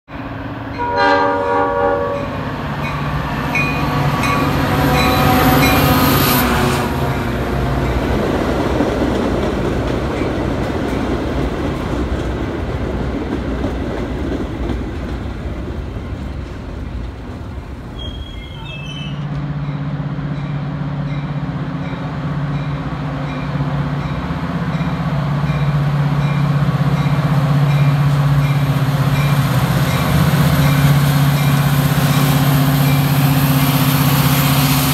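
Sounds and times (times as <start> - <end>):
diesel locomotive engine droning: 0.1 - 34.9
train cars rumbling and clattering: 0.1 - 34.9
train horn: 0.7 - 2.4, 3.9 - 7.1.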